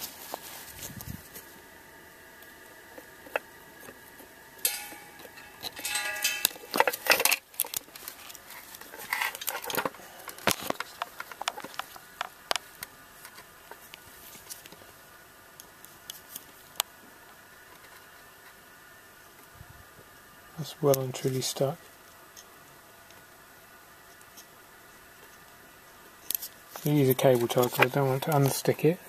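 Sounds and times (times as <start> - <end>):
clicks and clinks of metal and plastic: 4.6 - 8.1.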